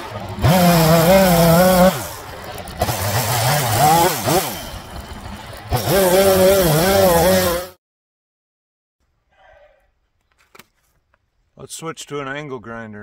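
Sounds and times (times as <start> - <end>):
chainsaw revving: 0.0 - 7.8.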